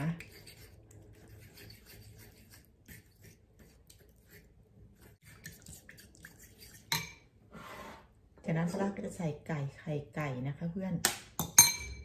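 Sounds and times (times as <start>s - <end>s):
soft wet stirring: 0.0s - 7.5s.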